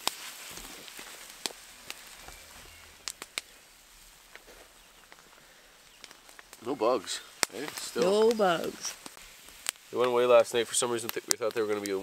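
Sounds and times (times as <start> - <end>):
campfire crackling and popping: 0.0 - 12.0
faint frying hiss: 0.0 - 12.0.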